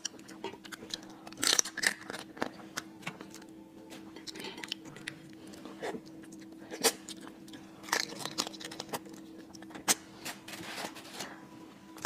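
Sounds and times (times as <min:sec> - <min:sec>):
crab shell cracking: 0:00.0 - 0:03.5, 0:06.2 - 0:10.0
wet chewing and biting: 0:04.2 - 0:10.0.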